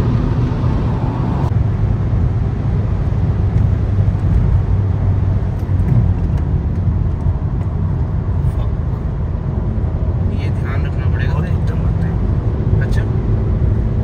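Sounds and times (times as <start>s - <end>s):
road and wind rumble in car: 0.0s - 14.0s.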